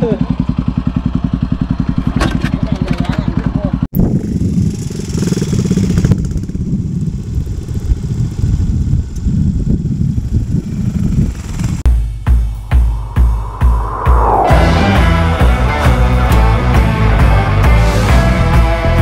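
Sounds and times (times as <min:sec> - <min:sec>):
motorcycle engines idling: 0:00.0 - 0:12.3
rock music with heavy beat: 0:11.9 - 0:19.0.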